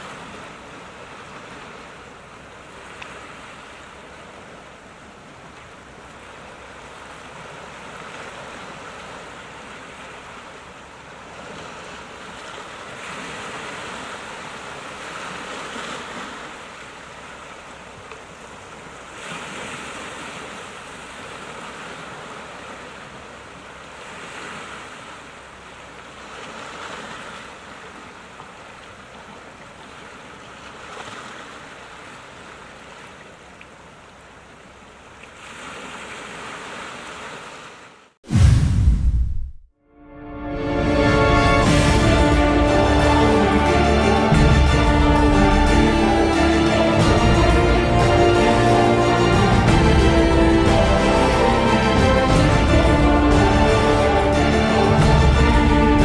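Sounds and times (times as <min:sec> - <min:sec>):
waves washing onto rocky shore: 0:00.0 - 0:33.5.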